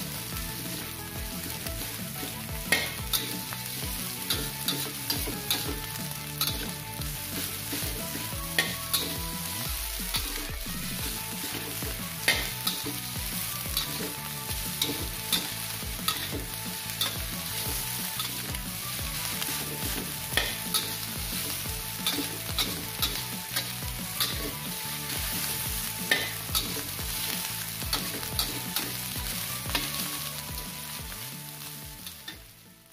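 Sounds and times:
metal spatula scraping a wok: 0.0s - 32.4s
rice sizzling in a wok: 0.0s - 32.9s.

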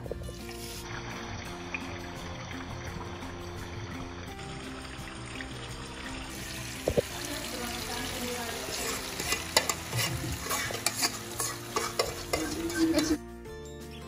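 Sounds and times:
food sizzling in a pan: 0.4s - 13.2s
stirring scrapes against pan: 8.7s - 13.2s.

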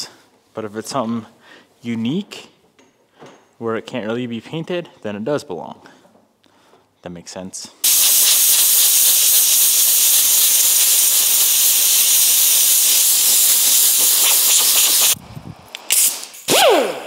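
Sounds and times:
compressed air hissing: 7.8s - 15.2s.

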